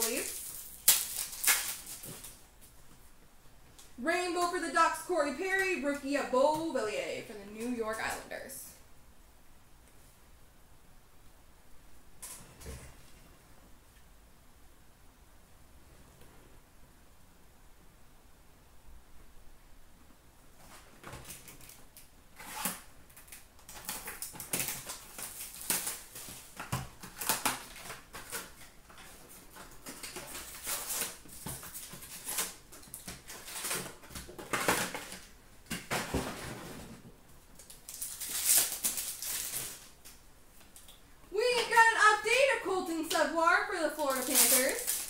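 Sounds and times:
wrappers crinkling and ripping: 0.0s - 2.5s, 21.1s - 36.1s, 37.5s - 42.5s, 43.7s - 45.0s
cardboard rustling: 23.7s - 40.0s.

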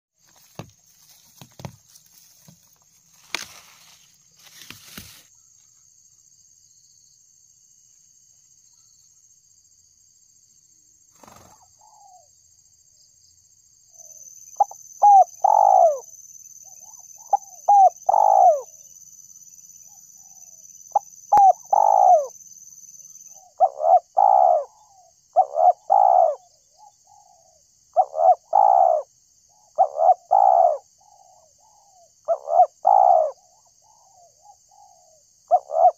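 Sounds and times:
faint knocks and rustles: 0.2s - 5.2s
dove cooing: 14.6s - 16.1s, 16.8s - 18.7s, 20.2s - 22.3s, 23.4s - 35.9s.

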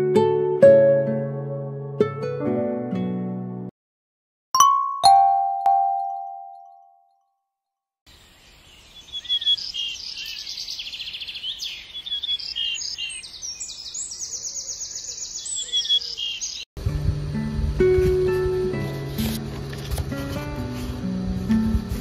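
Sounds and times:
bell-like chime: 4.6s - 7.0s
birds chirping in chorus: 8.1s - 16.7s.

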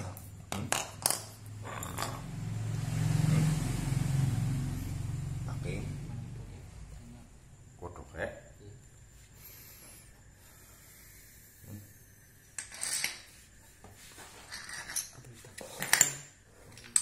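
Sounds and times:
metal parts clinking in tub: 0.7s - 2.2s, 12.6s - 13.3s, 14.4s - 17.0s.

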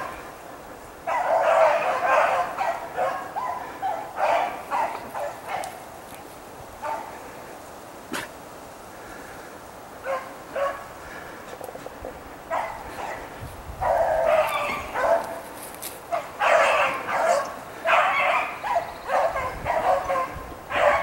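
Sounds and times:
hounds baying: 1.0s - 5.9s, 6.8s - 7.3s, 10.0s - 21.0s.

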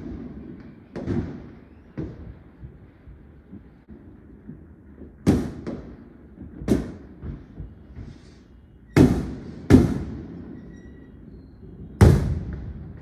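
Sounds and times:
small firework pops: 0.0s - 8.2s, 9.0s - 10.2s.

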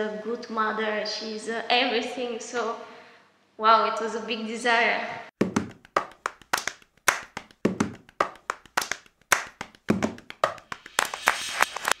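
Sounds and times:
sharp clap-like hits: 5.4s - 12.0s.

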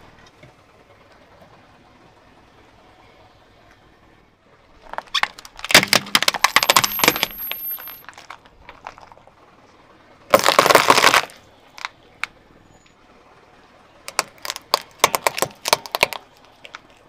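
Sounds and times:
plastic cracking under car tyre: 4.8s - 9.2s, 10.3s - 12.4s, 14.1s - 17.0s.

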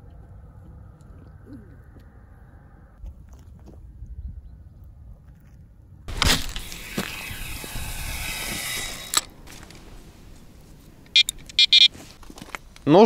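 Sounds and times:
fishing line hissing off reel: 6.2s - 9.3s.

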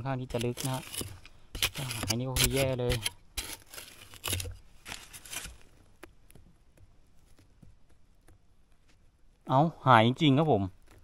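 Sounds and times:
digging scraping soil: 0.0s - 6.0s
faint crackles and ticks: 4.8s - 11.0s.

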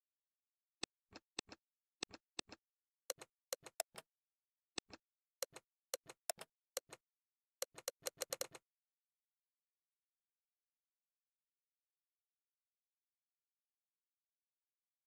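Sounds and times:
phone keyboard clicks: 7.6s - 8.6s.

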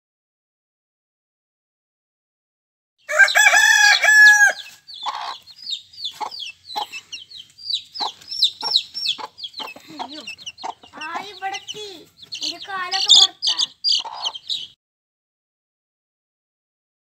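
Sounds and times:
rooster crowing: 3.0s - 5.4s
chicks peeping: 3.1s - 14.8s
low clucks: 6.1s - 14.4s.

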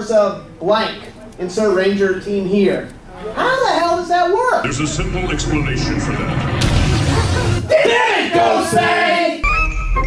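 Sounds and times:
music: 9.4s - 10.0s.

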